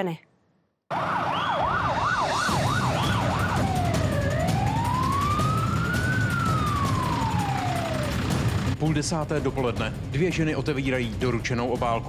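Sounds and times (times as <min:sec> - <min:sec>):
emergency vehicle siren: 0:00.9 - 0:08.8.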